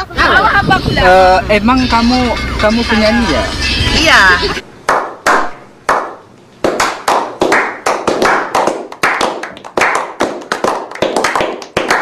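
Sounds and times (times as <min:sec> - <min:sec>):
people clapping: 0:04.9 - 0:12.0.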